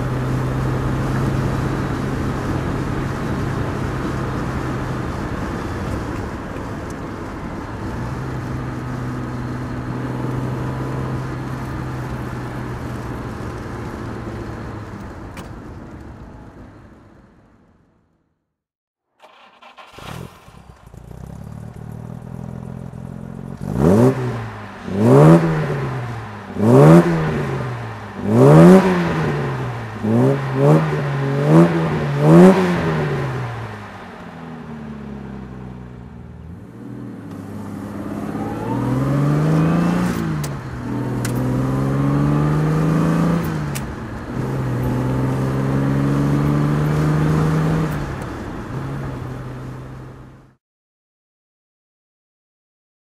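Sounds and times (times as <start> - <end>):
car engine idling and revving: 0.0 - 18.3, 19.2 - 50.6
car engine accelerating through gears: 19.2 - 50.2.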